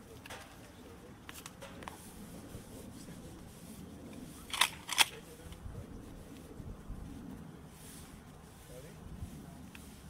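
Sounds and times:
shotgun action clacks: 4.5s - 5.2s.

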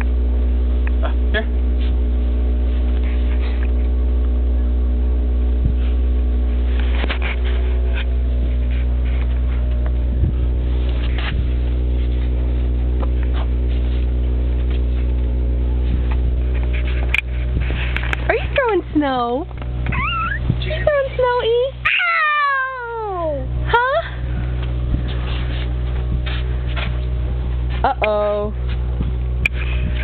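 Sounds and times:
low hum with steady tones: 0.0s - 30.0s.

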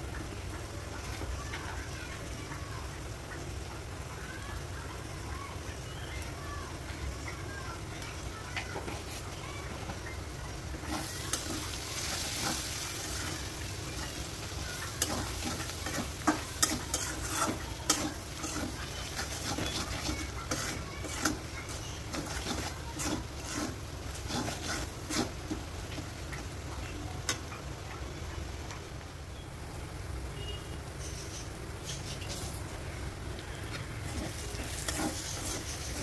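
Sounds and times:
onions sizzling in oil: 0.0s - 36.0s
metal spatula scraping pan: 10.9s - 14.2s, 14.9s - 25.6s, 34.1s - 36.0s.

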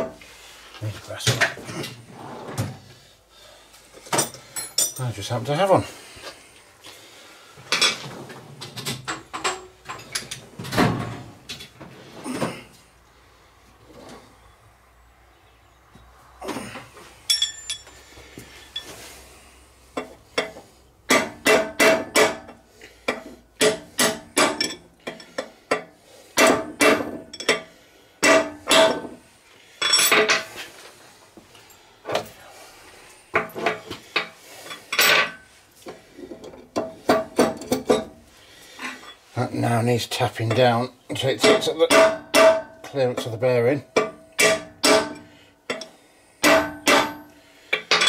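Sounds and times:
light metal clinks: 17.3s - 18.0s.

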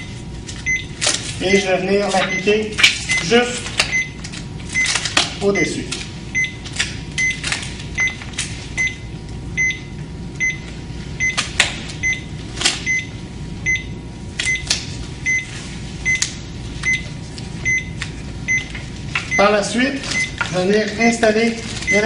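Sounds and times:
steady low hum: 0.0s - 22.0s
monitor short high beeps: 2.2s - 3.3s.

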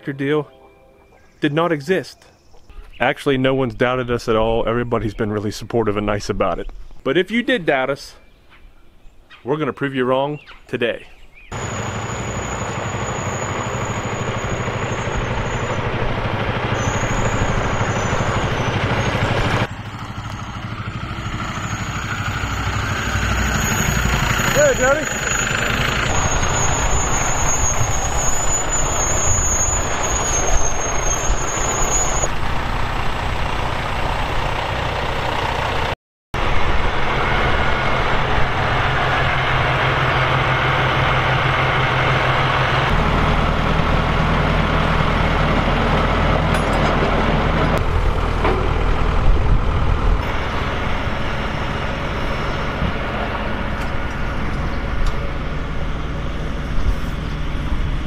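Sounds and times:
truck diesel engine idling: 11.5s - 27.3s, 32.3s - 58.0s.

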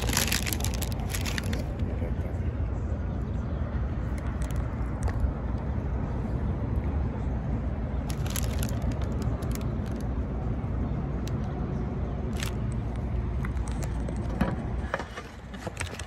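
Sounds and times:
paper wrapper crackling: 0.0s - 1.8s, 8.1s - 10.1s, 12.4s - 12.6s
low outdoor rumble: 0.0s - 16.0s.

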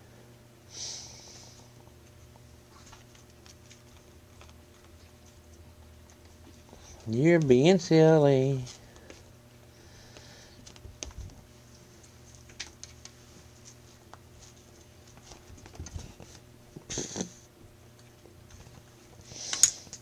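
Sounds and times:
kittens scuffling on carpet: 1.4s - 8.0s, 10.2s - 17.0s.

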